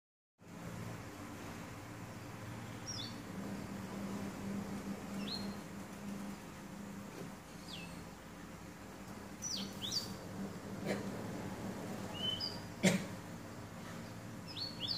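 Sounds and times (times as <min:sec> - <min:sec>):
canary chirping: 0:02.8 - 0:03.2, 0:05.2 - 0:05.6, 0:09.4 - 0:10.2, 0:12.1 - 0:12.7, 0:14.4 - 0:14.9.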